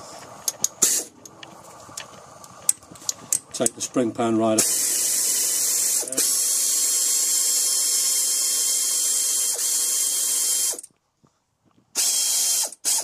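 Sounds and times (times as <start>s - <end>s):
power ratchet wrench running: 4.6s - 10.9s, 12.0s - 13.0s.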